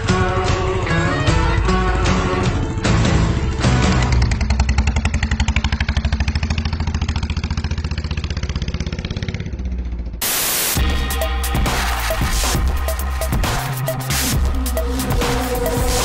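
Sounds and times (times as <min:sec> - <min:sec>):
motorcycle engine pulling away: 0:00.0 - 0:10.2
burst of hiss: 0:10.2 - 0:10.8.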